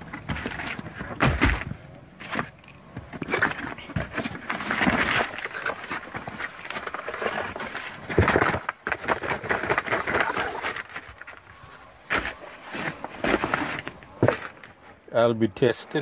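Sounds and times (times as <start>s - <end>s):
cardboard rustling and scraping: 0.0s - 15.1s.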